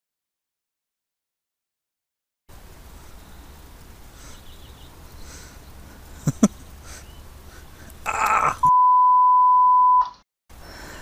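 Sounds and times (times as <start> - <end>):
censor bleep tone: 8.6 - 10.2.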